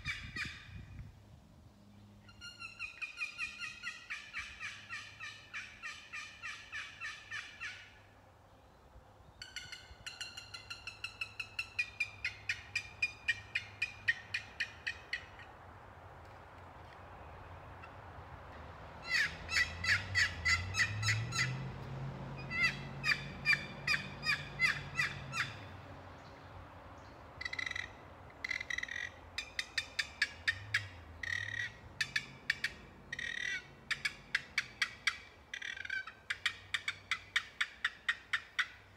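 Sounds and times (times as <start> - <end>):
turkey call yelps: 0.0 - 0.7, 2.3 - 8.1, 9.4 - 15.5, 19.0 - 21.6, 22.4 - 25.7, 27.4 - 38.9.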